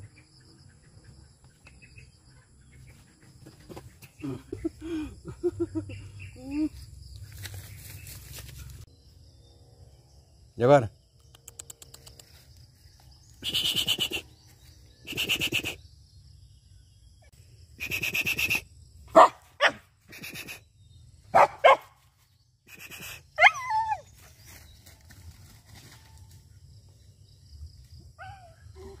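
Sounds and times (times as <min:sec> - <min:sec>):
dog barking: 0:19.1 - 0:19.9, 0:21.3 - 0:22.0
dog yelping: 0:23.4 - 0:24.0.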